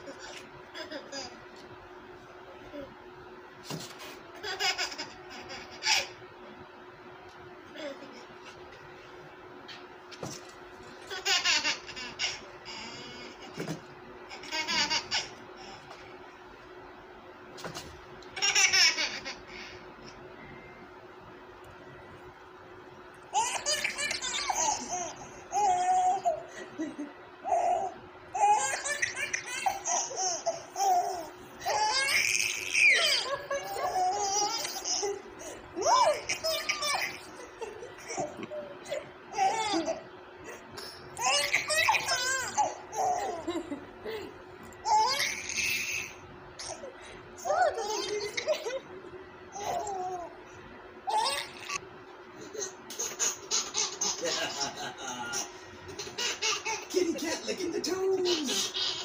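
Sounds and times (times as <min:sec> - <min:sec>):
baby giggling: 0:11.0 - 0:15.8, 0:23.4 - 0:44.3, 0:44.9 - 0:48.8, 0:52.4 - 0:57.4, 0:58.0 - 0:59.0.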